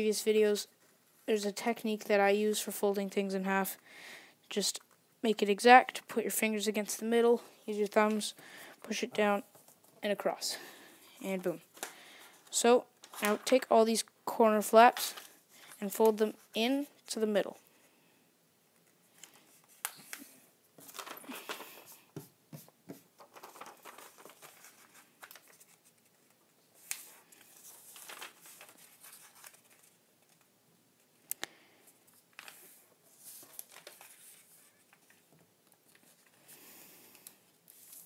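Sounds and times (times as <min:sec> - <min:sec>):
paper rustling and crinkling: 0:11.3 - 0:13.7, 0:19.1 - 0:30.5, 0:32.0 - 0:36.6, 0:37.2 - 0:38.0.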